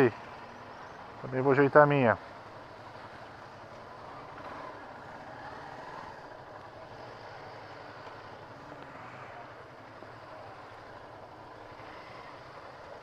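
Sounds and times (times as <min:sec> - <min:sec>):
motorcycle engines idling: 0:00.0 - 0:13.0.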